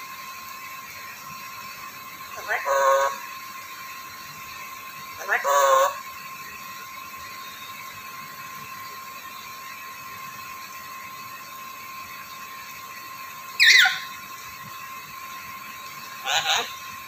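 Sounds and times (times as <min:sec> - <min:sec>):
steady high-pitched hum: 0:00.0 - 0:17.0
shrill parrot call: 0:02.4 - 0:03.2, 0:05.2 - 0:06.0, 0:13.6 - 0:14.2, 0:16.2 - 0:16.8.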